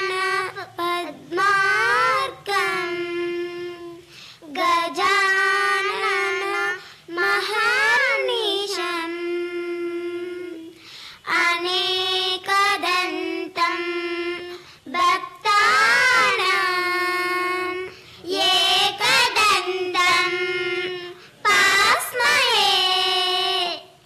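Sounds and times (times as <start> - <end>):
child singing a prayer: 0.0 - 24.0.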